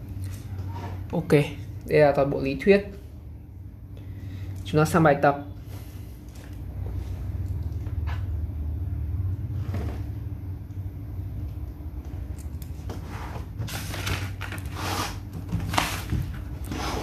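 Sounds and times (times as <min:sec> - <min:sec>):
steady low rumble: 0:05.7 - 0:12.8.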